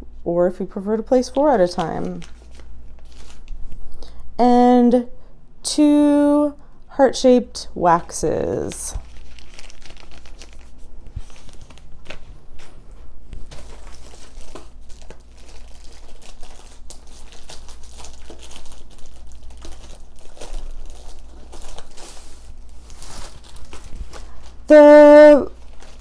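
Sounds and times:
plastic sleeve crinkling: 1.2 - 3.8, 8.5 - 26.0.

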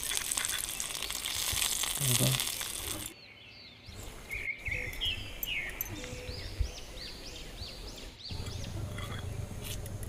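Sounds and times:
bird chirping: 3.1 - 9.7.

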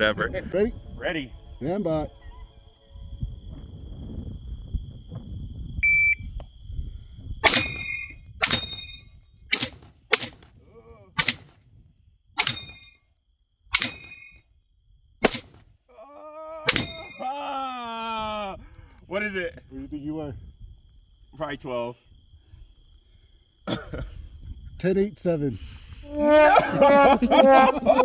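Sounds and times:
rifle gunshots: 7.4 - 10.5, 11.2 - 11.5, 15.2 - 15.6
steel targets ringing: 7.5 - 9.2, 12.4 - 13.0, 13.8 - 14.4.

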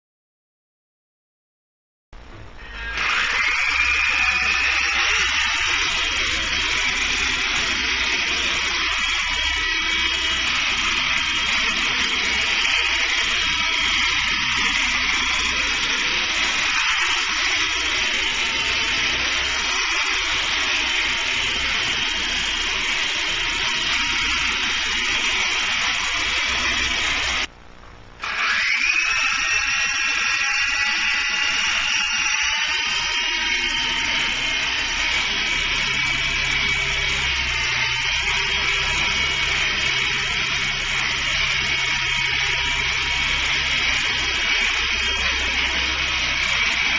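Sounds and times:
rc helicopter motor whine: 2.6 - 27.5, 28.2 - 46.9.

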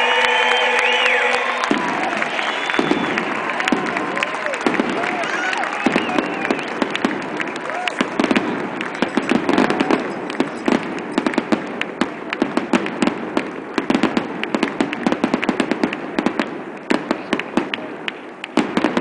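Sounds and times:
fireworks bangs and crackling: 0.0 - 19.0.

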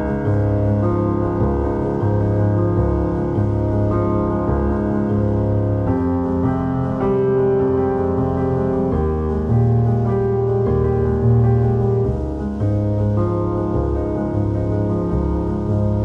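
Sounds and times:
keyboard chords over bass: 0.0 - 16.0.

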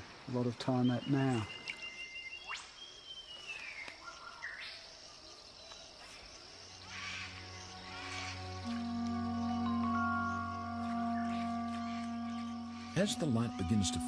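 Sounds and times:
insect drone: 0.0 - 14.0
bird whistled call: 0.9 - 4.7
soft music with held notes: 6.7 - 14.0.

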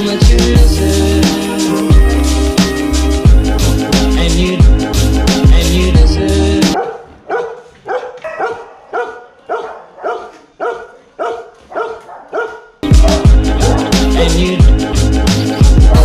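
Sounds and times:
background music: 0.0 - 6.8, 12.8 - 16.0
dog barking: 6.8 - 14.5.

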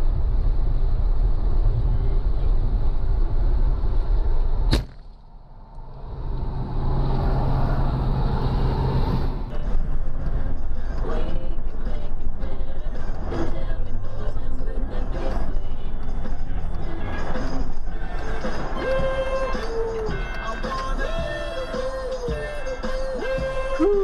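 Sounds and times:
car road and engine rumble: 0.0 - 24.0
sharp crack: 4.6 - 5.9.

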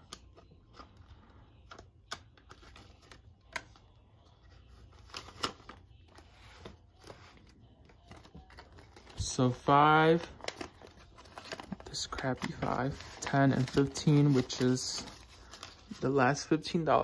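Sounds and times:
paper bills rustling: 4.2 - 17.0.

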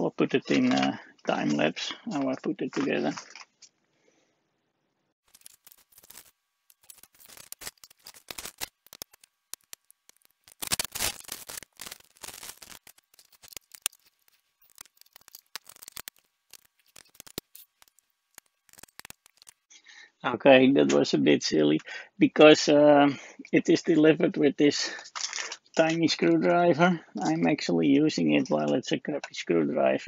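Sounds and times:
plastic bag rustling: 5.2 - 19.7
small parts clicking and tapping: 5.3 - 19.7, 25.0 - 26.0.

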